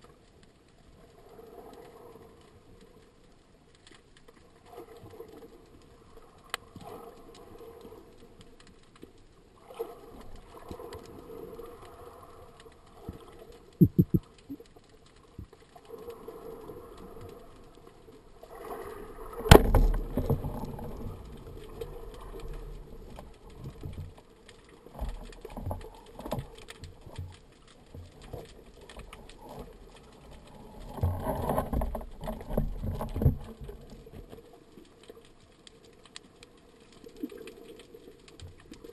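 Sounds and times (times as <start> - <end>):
knocks and scraping: 13.8 - 14.2
sharp clicks: 13.8 - 14.6
underwater rubbing and knocking: 13.8 - 14.6.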